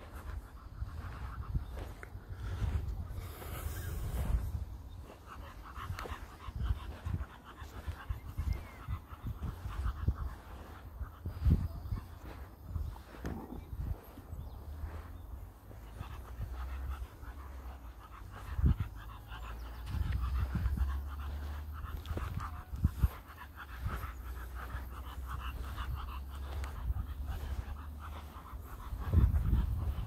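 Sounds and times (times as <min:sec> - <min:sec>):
dog panting rapidly: 0:00.0 - 0:30.0.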